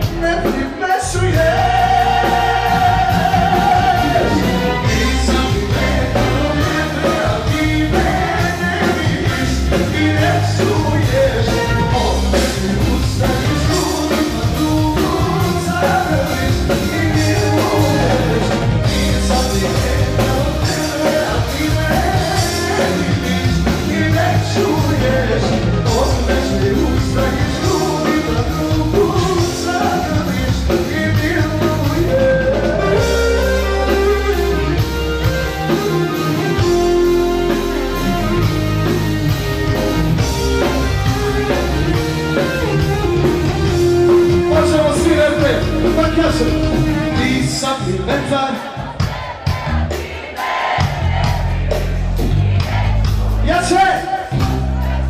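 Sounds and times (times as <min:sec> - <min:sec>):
man singing into a microphone: 0:00.0 - 0:33.5, 0:44.3 - 0:48.9
live band music: 0:00.0 - 0:55.0.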